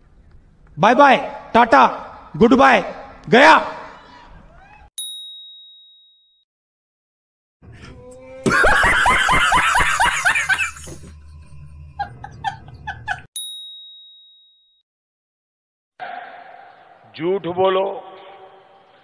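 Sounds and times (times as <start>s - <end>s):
bell-like ding: 5.0s - 6.4s, 13.4s - 14.8s
man laughing hard: 8.4s - 11.2s, 12.0s - 13.3s.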